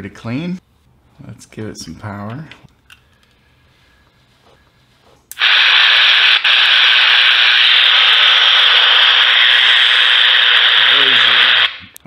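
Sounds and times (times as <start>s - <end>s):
radio static hiss: 5.3s - 12.0s.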